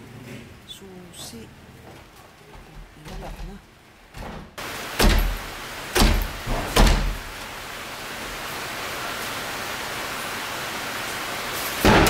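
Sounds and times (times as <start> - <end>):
door shutting thuds: 2.6 - 7.5
steady hiss: 3.8 - 12.0.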